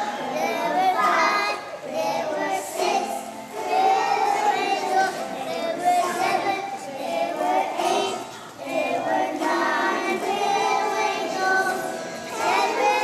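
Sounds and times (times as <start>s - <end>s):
young children singing: 0.0s - 13.0s.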